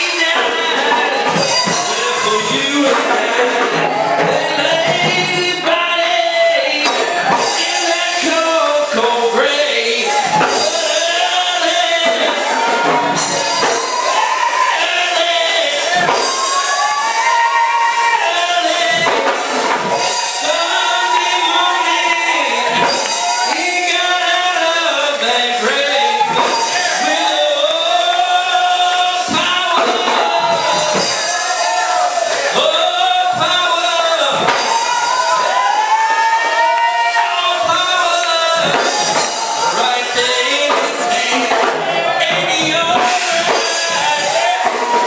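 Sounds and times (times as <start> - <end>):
preacher chanting into a microphone: 0.0 - 12.6, 18.0 - 19.4, 20.4 - 31.1, 32.5 - 34.5
gospel music: 0.0 - 45.0.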